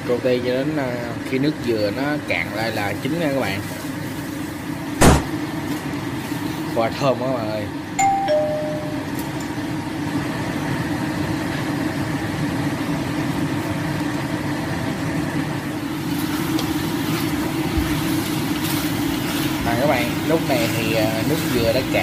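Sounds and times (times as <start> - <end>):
chicken sizzling in a wok: 0.3 - 8.0, 9.2 - 22.0
low steady hum: 8.0 - 9.9.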